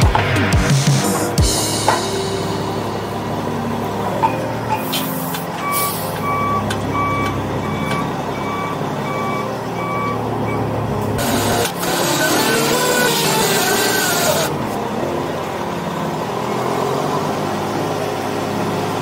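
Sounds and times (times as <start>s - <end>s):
diesel engine running: 0.0s - 19.0s
truck backup alarm beeping: 1.5s - 14.6s, 16.0s - 17.1s.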